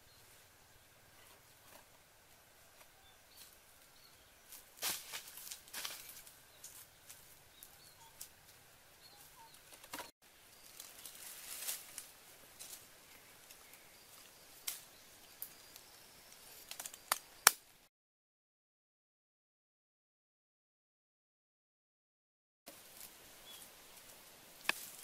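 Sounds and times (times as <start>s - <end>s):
faint bird chirps: 2.5s - 4.6s, 6.0s - 11.3s
bamboo trap rustling on dry leaves: 4.4s - 8.3s, 9.3s - 17.3s, 22.7s - 25.0s.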